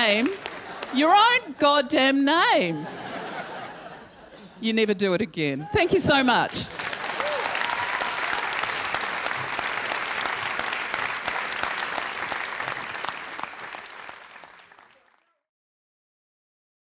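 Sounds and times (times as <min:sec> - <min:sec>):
audience applauding: 0:00.0 - 0:01.4, 0:06.5 - 0:15.4.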